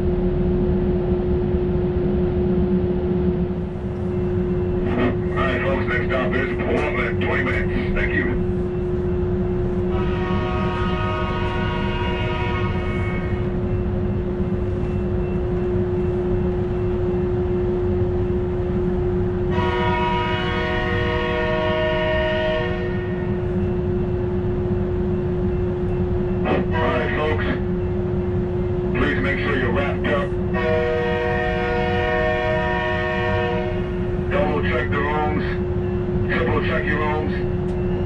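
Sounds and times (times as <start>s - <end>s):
stopped train rumbling and humming: 0.0s - 38.0s
train horn blasts: 9.8s - 13.6s, 19.4s - 23.4s, 30.5s - 34.8s.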